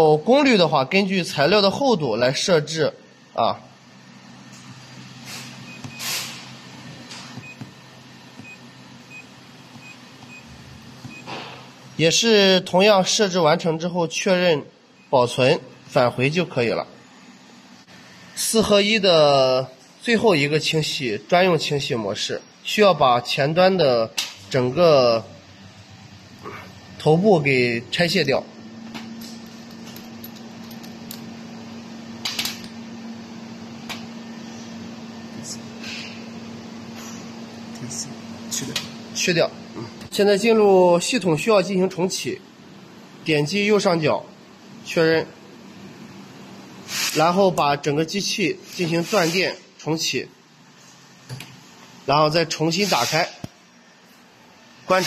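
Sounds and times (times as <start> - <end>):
machine cabinet humming: 0.0 - 48.8
brief hiss: 5.3 - 6.4
small metal parts clinking: 29.4 - 31.2.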